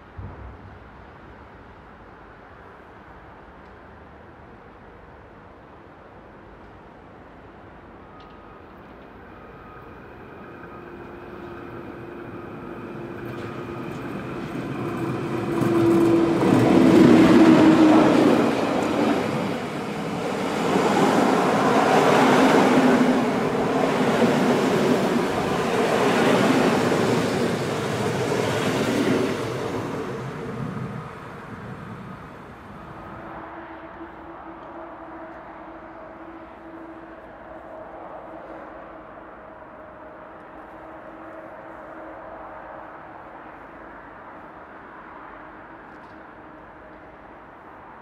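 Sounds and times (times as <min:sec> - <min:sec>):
electric locomotive humming: 0:07.4 - 0:43.8
coaches rolling on rails: 0:08.2 - 0:33.2.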